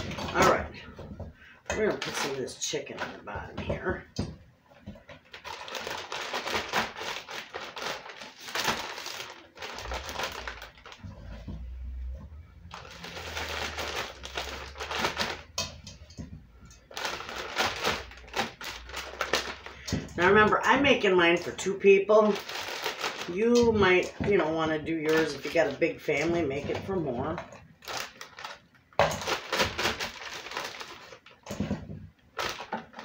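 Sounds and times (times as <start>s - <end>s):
plastic bags crinkling: 0.0s - 0.9s, 1.7s - 4.0s, 4.8s - 11.5s, 12.6s - 33.0s.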